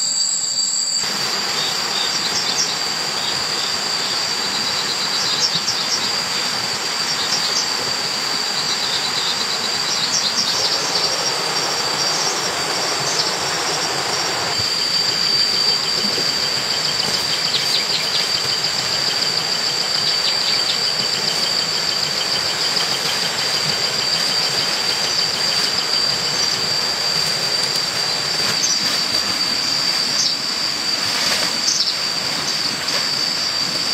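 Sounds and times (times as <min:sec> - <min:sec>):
insects whining and trilling: 0:00.0 - 0:33.9
rustles and clicks: 0:30.9 - 0:33.2.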